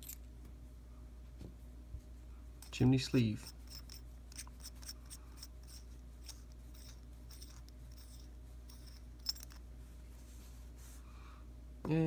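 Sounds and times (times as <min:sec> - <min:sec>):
metal threads ticking and scraping: 0:02.6 - 0:09.7.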